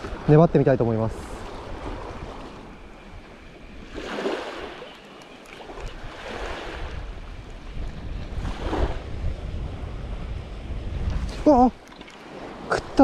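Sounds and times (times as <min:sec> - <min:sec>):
small waves washing on sand: 0:00.0 - 0:13.0
wind rumbling on microphone: 0:00.0 - 0:13.0.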